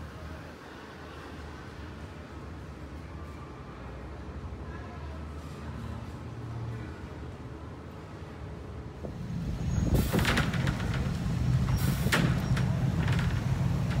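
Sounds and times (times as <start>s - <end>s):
heavy engine rumbling: 8.5s - 14.0s.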